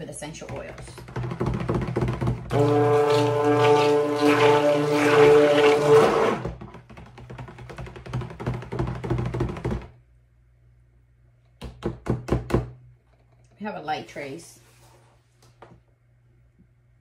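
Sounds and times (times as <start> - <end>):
blender churning batter: 0.4 - 8.9
blender knocking on plastic bowl: 0.4 - 9.9
stick blender motor whining: 2.5 - 6.6.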